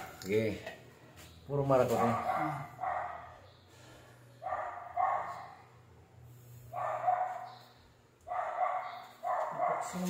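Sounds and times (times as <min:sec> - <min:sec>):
dog barking: 0:01.8 - 0:03.5, 0:04.4 - 0:05.8, 0:06.7 - 0:10.0.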